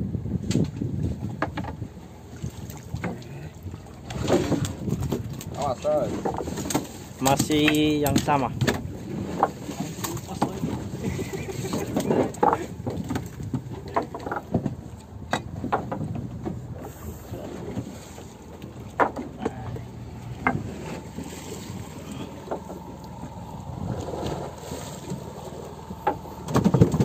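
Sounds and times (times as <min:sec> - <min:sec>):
wind rumble on microphone: 0:00.0 - 0:27.0
tackle knocking and clicking: 0:06.2 - 0:09.6, 0:26.0 - 0:27.0.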